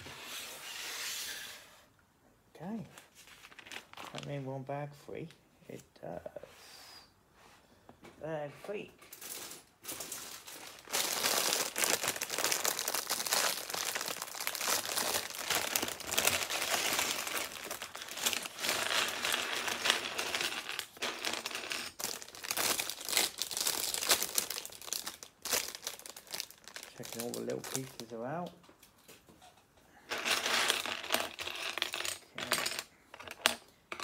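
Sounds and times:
plastic bag crinkling: 9.1s - 28.4s.

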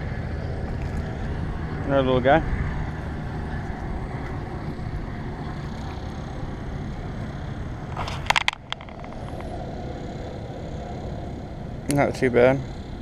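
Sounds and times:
wind rumbling on microphone: 0.0s - 11.9s
fishing rod clicks and rattles: 7.9s - 9.6s.

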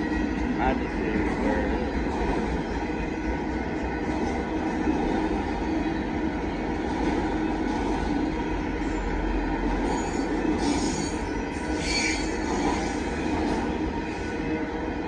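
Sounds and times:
train wheels rumbling on rail: 0.0s - 15.0s
high-pitched wheel squeal: 9.9s - 13.0s.

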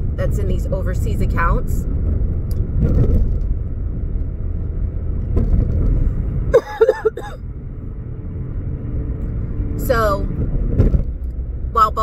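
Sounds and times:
car cabin road rumble: 0.0s - 12.0s.

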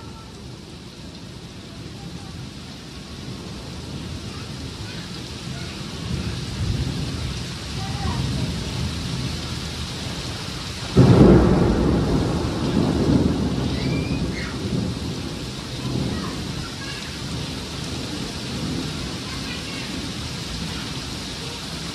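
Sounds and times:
heavy rain pouring: 0.0s - 21.9s
thunder rumbling: 0.0s - 21.9s
loud thunderclap: 5.4s - 21.0s.

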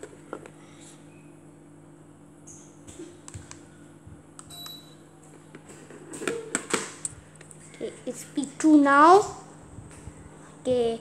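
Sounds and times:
ceiling fan humming: 0.0s - 11.0s
high beep: 4.5s - 5.0s.

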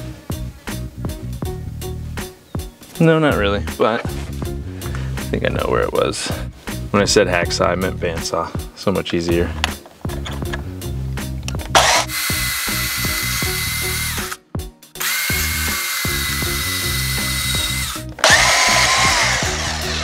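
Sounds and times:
background music with beat: 0.0s - 11.7s, 12.7s - 20.0s
band saw cutting steel: 11.8s - 14.4s, 15.0s - 20.0s.

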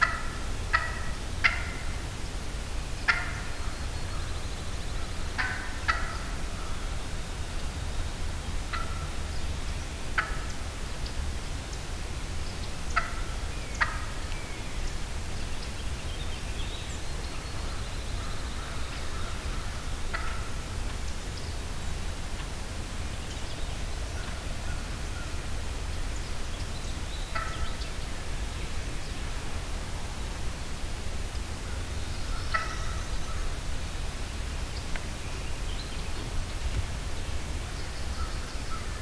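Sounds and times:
turkey calling: 0.0s - 2.0s, 3.0s - 4.2s, 5.0s - 6.9s, 8.7s - 9.2s, 10.2s - 10.6s, 12.9s - 14.4s, 18.2s - 20.7s, 27.2s - 27.9s, 31.6s - 33.6s.

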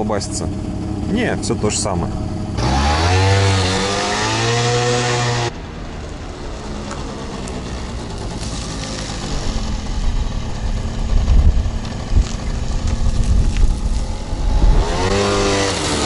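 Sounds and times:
scooter engine running: 0.0s - 16.0s
wind buffeting microphone: 9.6s - 15.5s.

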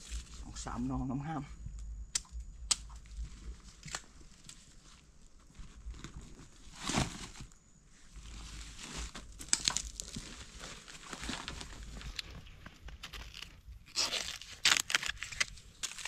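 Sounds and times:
plastic sack crinkling: 8.2s - 16.0s.

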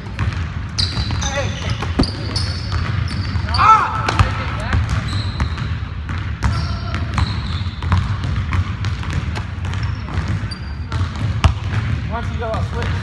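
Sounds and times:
basketballs bouncing on wooden floor: 0.0s - 13.0s
sneaker squeaks: 0.6s - 8.3s, 9.6s - 11.2s.

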